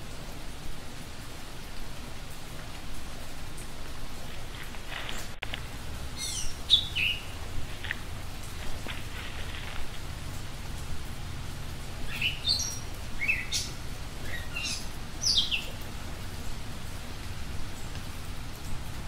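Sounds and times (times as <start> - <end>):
slowed bird calls: 4.7 - 11.1, 12.0 - 15.8.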